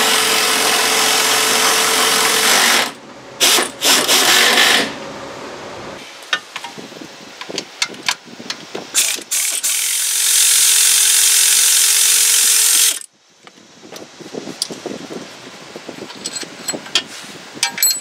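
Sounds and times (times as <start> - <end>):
power ratchet whining: 0.0 - 4.9, 9.0 - 13.1.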